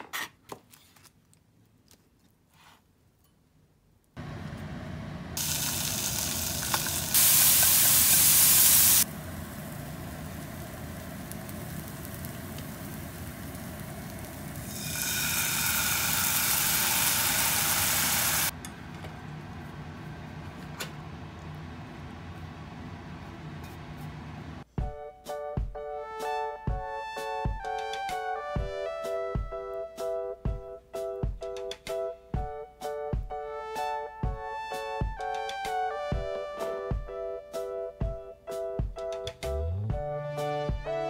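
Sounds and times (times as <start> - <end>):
food sizzling in a frying pan: 5.4 - 18.5.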